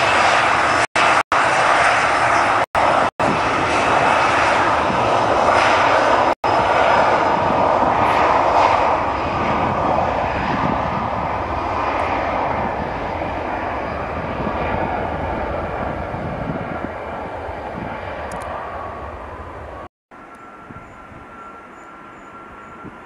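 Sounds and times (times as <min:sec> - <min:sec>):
jet engine roar: 0:00.0 - 0:23.0.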